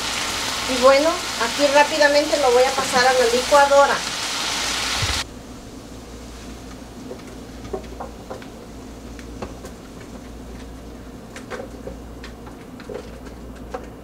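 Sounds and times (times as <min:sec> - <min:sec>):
steady low hum: 0:05.2 - 0:14.0.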